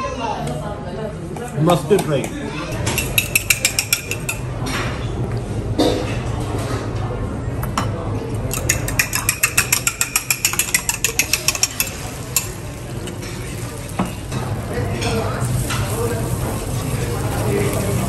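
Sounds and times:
fork beating eggs in bowl: 2.8 - 4.4, 8.5 - 12.6.

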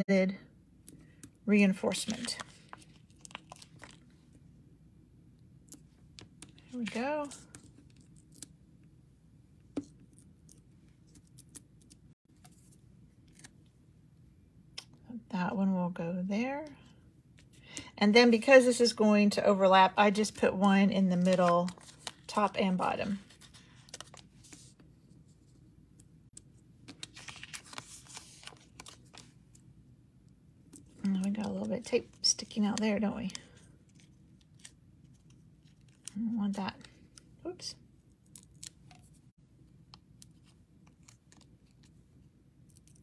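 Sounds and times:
paper rustling: 21.2 - 22.5, 23.1 - 24.8, 26.8 - 29.4.

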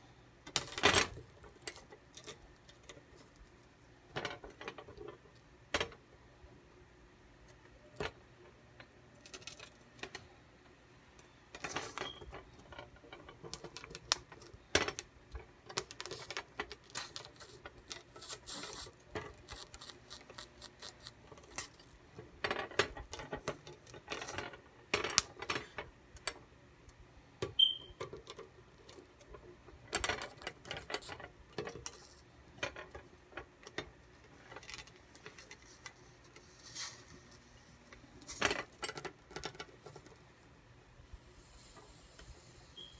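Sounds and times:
corn kernels crackling and popping: 15.6 - 21.9.

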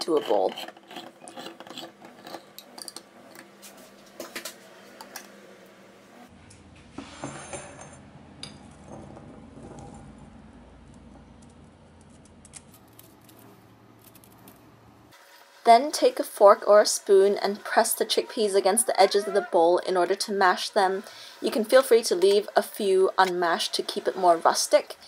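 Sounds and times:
low hum: 2.6 - 15.2
kitchenware clinking: 7.2 - 9.4.

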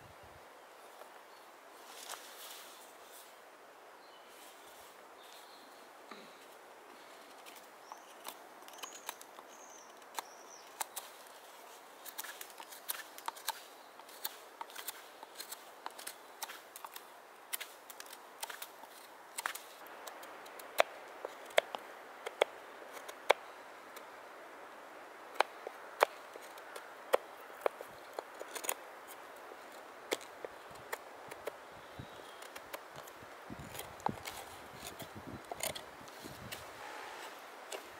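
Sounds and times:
faint bird chirping: 0.0 - 16.6, 31.6 - 35.6
knife carving wood: 7.2 - 24.1, 25.3 - 37.9.

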